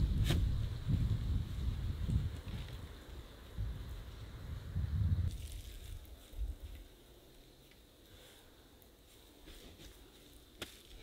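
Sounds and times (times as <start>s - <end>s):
moss crushing and rustling: 5.3s - 7.0s, 9.0s - 11.0s.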